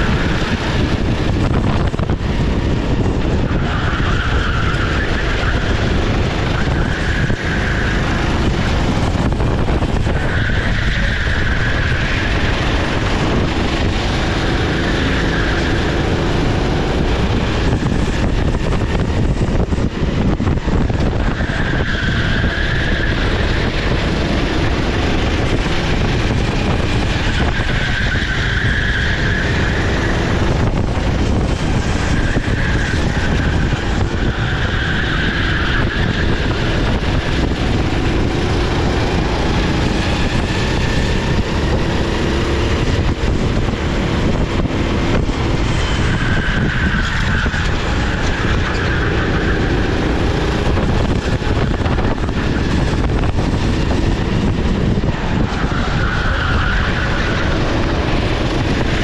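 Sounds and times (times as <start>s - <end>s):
kart engine racing: 0.0s - 59.0s
loud rushing noise: 0.0s - 59.0s.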